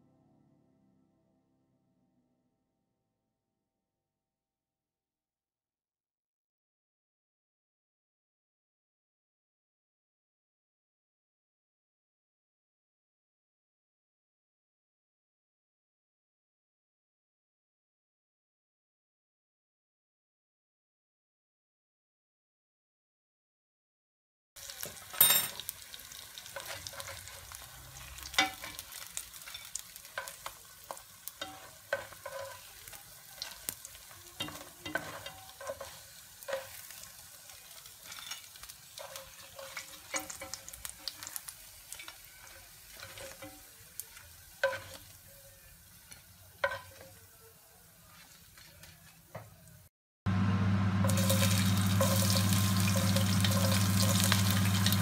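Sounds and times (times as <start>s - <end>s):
bread frying in oil: 24.6s - 55.0s
garlic sizzling in hot oil: 24.6s - 55.0s.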